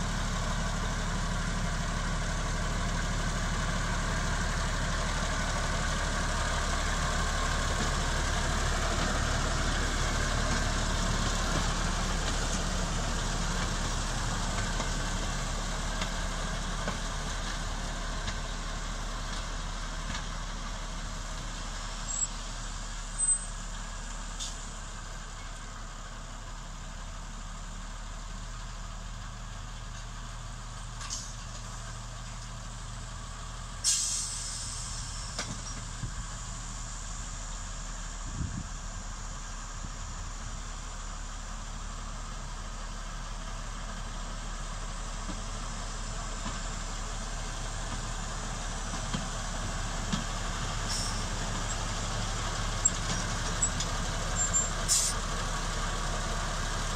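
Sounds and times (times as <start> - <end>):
diesel locomotive engine: 0.0 - 56.9.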